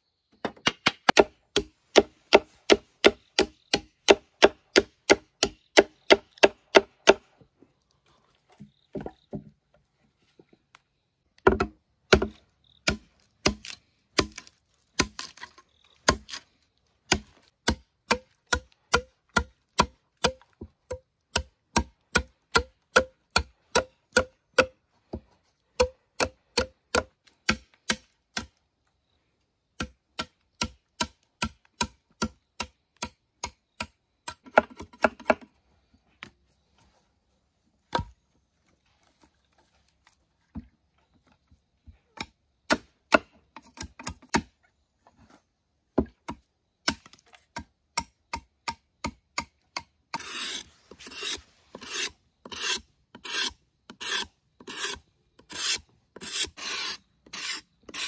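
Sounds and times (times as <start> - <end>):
tool knocking on bamboo: 11.4 - 12.3
rasping strokes: 50.1 - 58.0.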